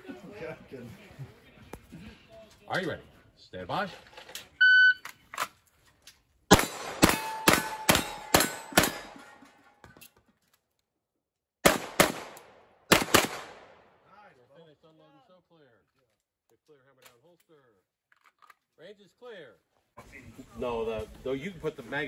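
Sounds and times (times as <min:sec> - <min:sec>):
pistol shots: 0:06.5 - 0:09.2, 0:11.6 - 0:13.9
bullets ringing off steel target: 0:06.5 - 0:09.4.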